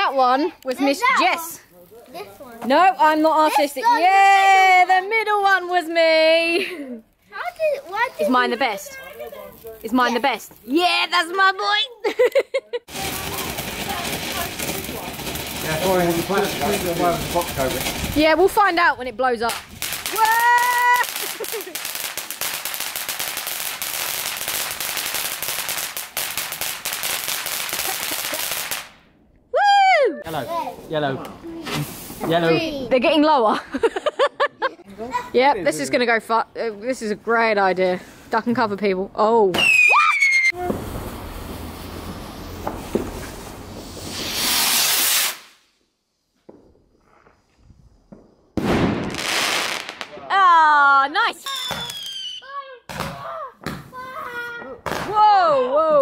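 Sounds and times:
firework fountain crackling: 0.0s - 29.0s, 30.3s - 34.5s, 39.6s - 45.8s, 46.5s - 55.4s
firework hissing burst: 12.9s - 18.7s, 19.5s - 29.0s, 31.6s - 32.4s, 40.5s - 45.8s, 48.5s - 50.2s.

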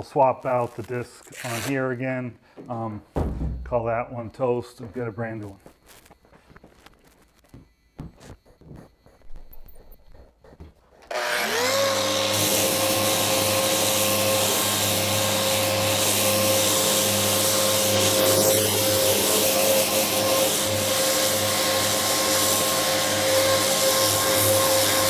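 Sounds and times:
orbital sander sanding: 11.1s - 25.0s.

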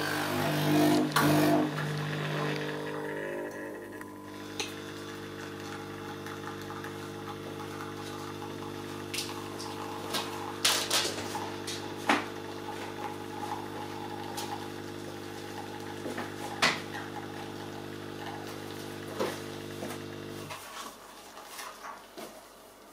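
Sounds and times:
coffee machine pump humming: 0.0s - 20.6s.

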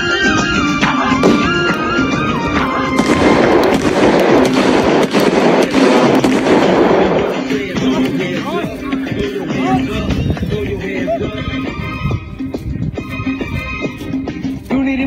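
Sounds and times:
film music: 0.0s - 14.7s
gunfire sound effect: 2.9s - 8.0s.

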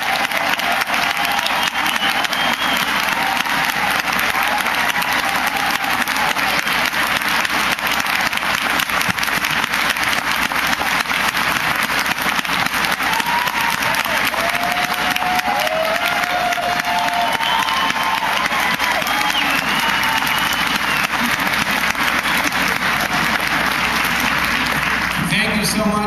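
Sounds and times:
audience applauding: 0.0s - 26.0s.

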